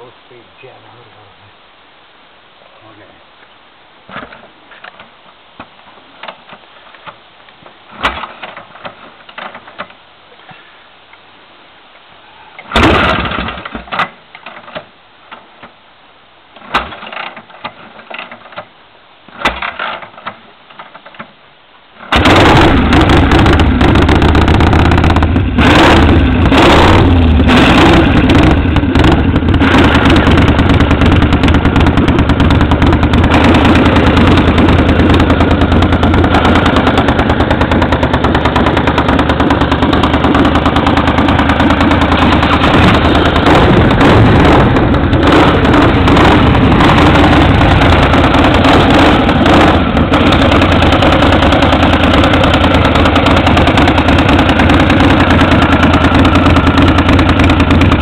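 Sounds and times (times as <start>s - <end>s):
motorcycle engine sputtering: 22.0s - 58.0s
motorcycle engine running: 22.1s - 58.0s.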